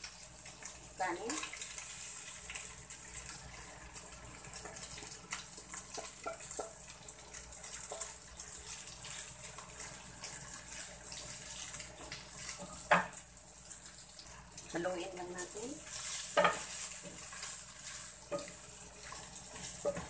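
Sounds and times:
rice sizzling in a frying pan: 0.0s - 20.0s
wooden spoon knocking and scraping: 19.5s - 20.0s.

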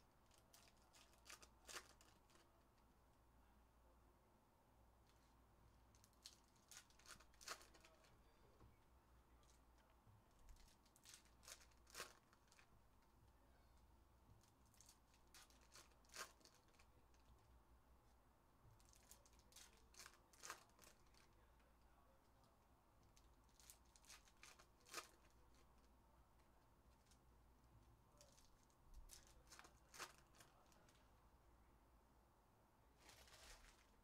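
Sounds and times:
foil wrappers tearing and crinkling: 0.5s - 2.4s, 19.0s - 21.2s, 29.1s - 30.5s.

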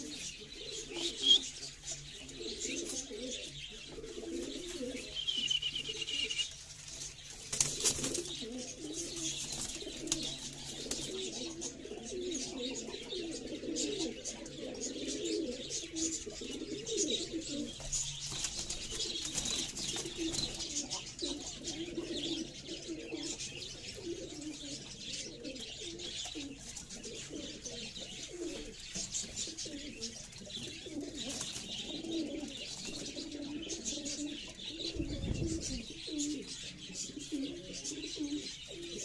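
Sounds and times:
pigeons cooing: 0.0s - 39.0s
higher chirping: 5.0s - 6.6s.

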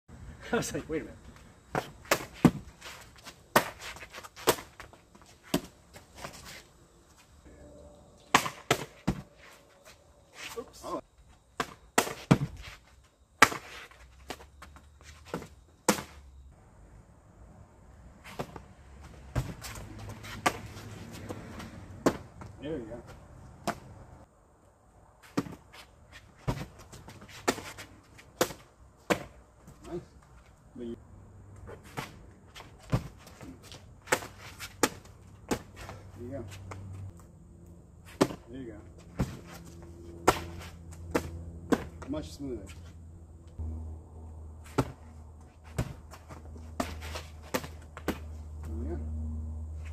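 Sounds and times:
kicks slapping paddles: 1.7s - 5.7s, 8.3s - 9.3s, 11.6s - 12.7s, 13.4s - 14.4s, 18.3s - 22.6s, 32.8s - 36.0s, 38.1s - 38.5s, 40.2s - 42.1s, 44.7s - 48.8s
foot shuffles: 1.8s - 7.4s, 44.7s - 48.7s
kicks slapping a kick pad: 11.6s - 12.6s, 22.0s - 22.3s, 41.1s - 42.0s, 44.7s - 45.0s.

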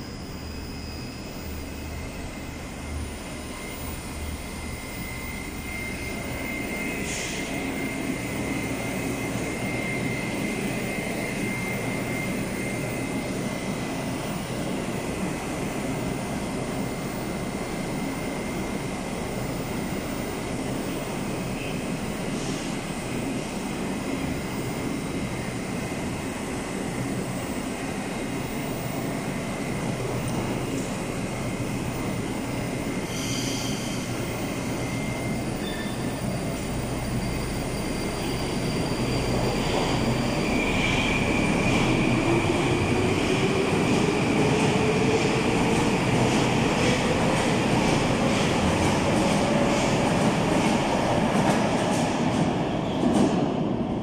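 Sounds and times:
subway train running hum: 0.0s - 54.0s.

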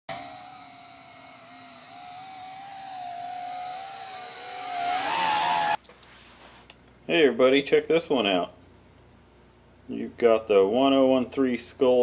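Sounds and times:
drone propellers whining: 0.1s - 5.8s.

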